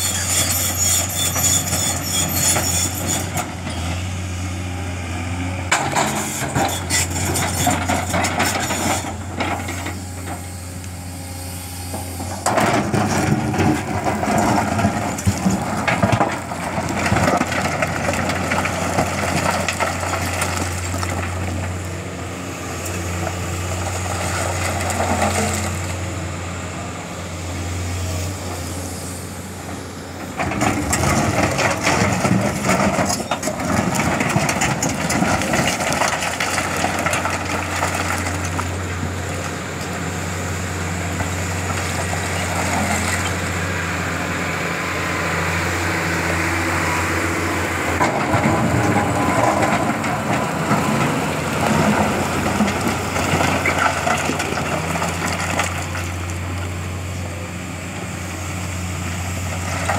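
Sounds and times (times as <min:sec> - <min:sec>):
excavator diesel engine: 0:00.0 - 0:59.9
rock crunching and scraping: 0:12.2 - 0:21.8.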